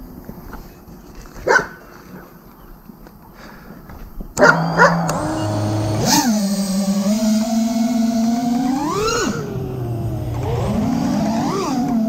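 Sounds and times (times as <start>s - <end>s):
drone motors humming: 4.4s - 12.0s.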